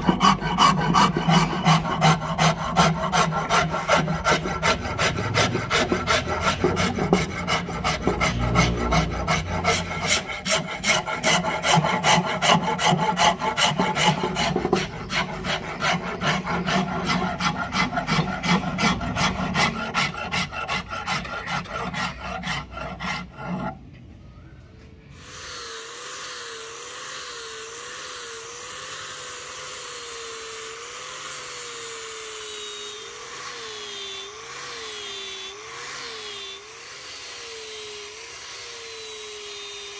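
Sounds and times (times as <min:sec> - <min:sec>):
power sander running: 0:00.0 - 0:23.7, 0:25.2 - 0:39.9
hand file rasping on wood: 0:00.0 - 0:23.8.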